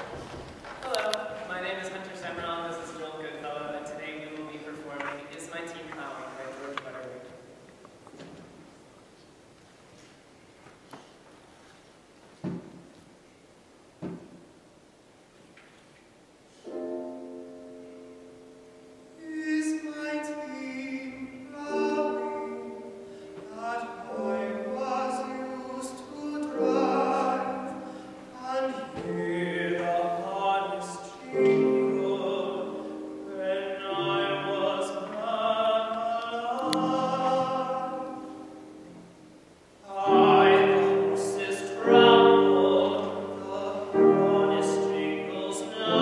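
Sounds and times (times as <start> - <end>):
grand piano accompaniment: 0.0 - 7.8, 16.2 - 46.0
tenor singing: 18.8 - 46.0.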